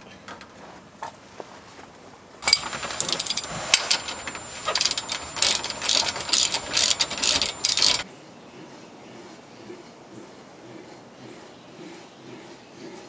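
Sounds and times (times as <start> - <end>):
ratchet wrench clicking: 2.4 - 8.0.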